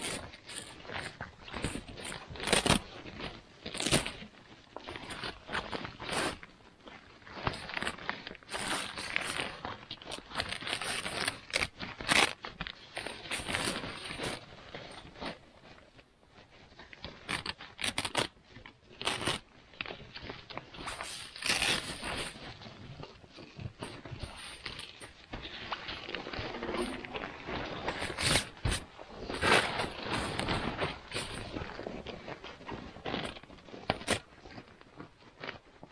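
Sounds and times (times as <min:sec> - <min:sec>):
tent fabric scraping and rustling: 0:07.4 - 0:17.6, 0:20.4 - 0:34.7.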